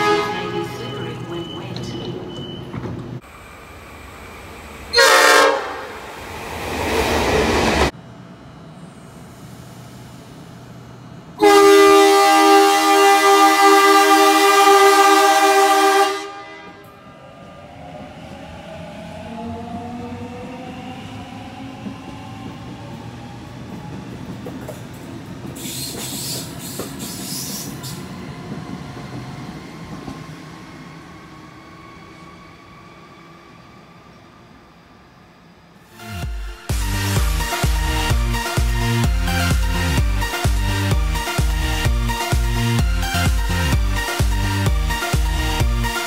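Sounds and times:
train horn blast: 0.0 - 1.2, 4.9 - 6.0, 11.4 - 17.0.

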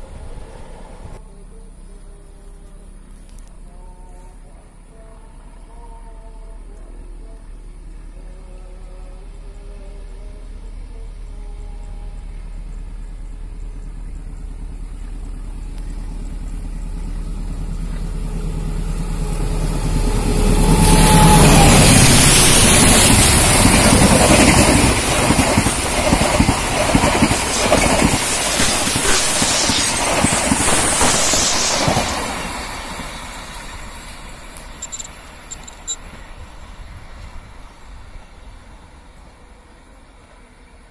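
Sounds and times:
locomotive engine passing: 9.2 - 40.9
train wheels clattering on rails: 22.0 - 36.2.

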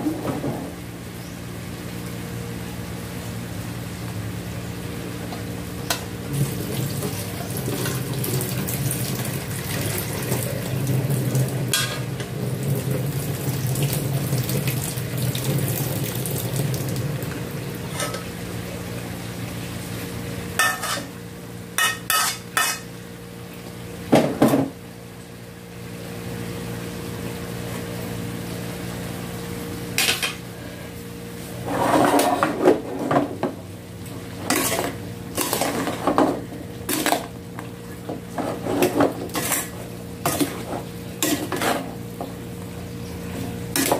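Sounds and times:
pot bubbling on stove: 5.2 - 22.9
pot and ladle clinking: 20.6 - 21.1, 21.8 - 22.9
pot clattering: 20.6 - 21.1.

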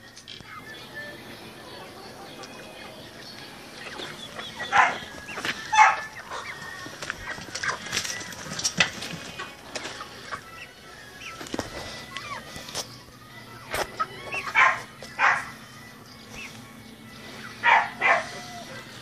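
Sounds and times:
chickens clucking: 0.0 - 19.0
chicken squawks: 13.6 - 15.6, 17.4 - 19.0.

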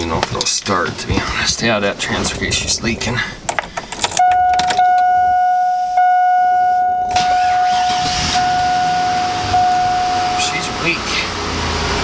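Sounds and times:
car warning chime tone: 4.2 - 11.0.

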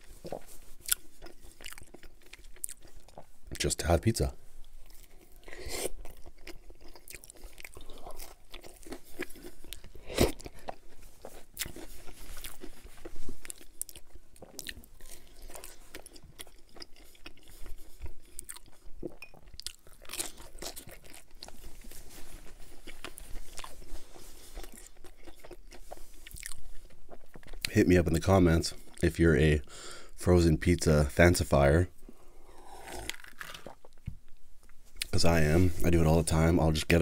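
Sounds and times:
crunchy chewing: 0.0 - 3.7, 4.7 - 27.7, 32.1 - 34.1.

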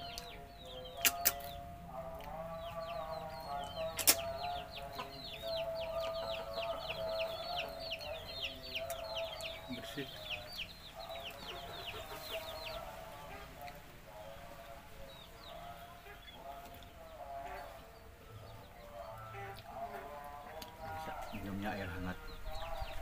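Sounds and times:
chicks peeping: 0.0 - 23.0
sharp click: 1.0 - 1.5, 4.0 - 4.2.

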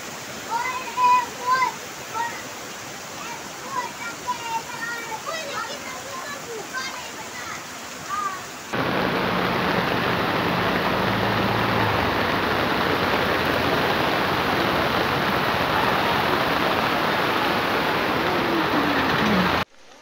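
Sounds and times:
floodwater running down street: 0.0 - 20.0
heavy rain: 0.0 - 20.0.

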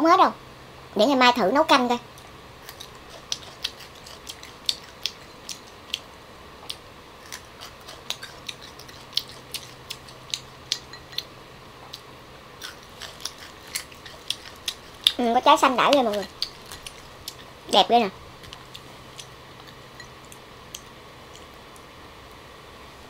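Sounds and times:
crunching and chewing pods: 2.6 - 21.9.

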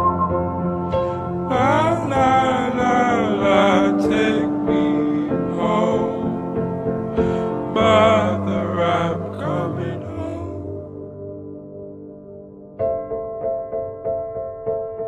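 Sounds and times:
slowed-down folk-pop song: 0.0 - 10.8.

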